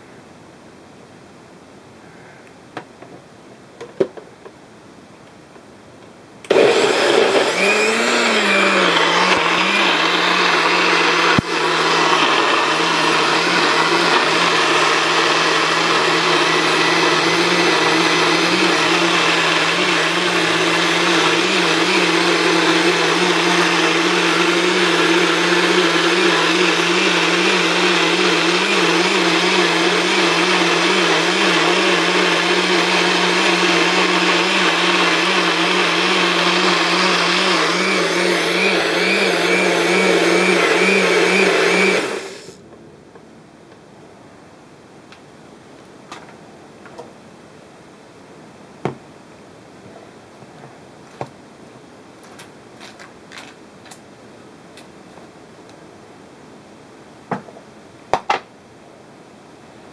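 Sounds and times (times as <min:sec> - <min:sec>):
blender motor humming: 0:06.5 - 0:42.6.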